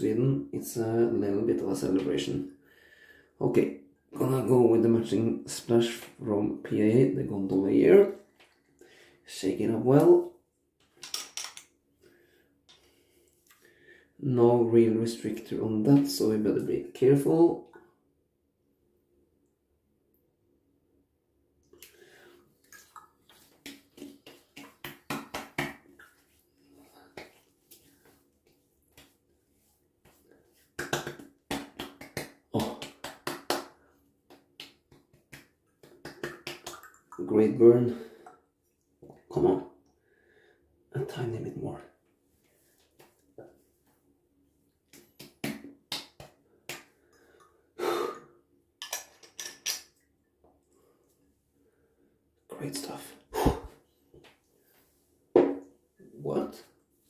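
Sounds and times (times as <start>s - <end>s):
soft wet patting: 7.2s - 8.8s, 12.7s - 13.8s, 21.6s - 39.4s, 42.0s - 47.6s
palms slapping face: 11.0s - 11.7s, 23.3s - 29.2s, 30.0s - 37.1s, 44.9s - 47.0s.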